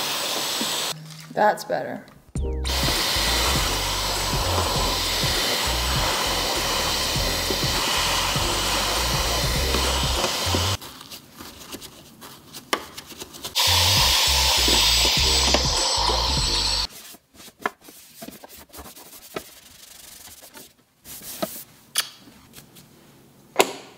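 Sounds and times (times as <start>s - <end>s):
stick vacuum running: 2.4s - 10.8s, 13.6s - 16.9s.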